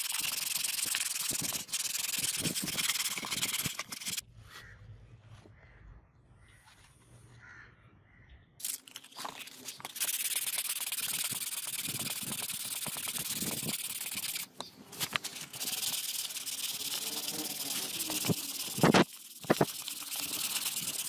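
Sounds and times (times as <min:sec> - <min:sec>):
sandpaper rasping: 0:00.0 - 0:04.2, 0:09.4 - 0:21.0.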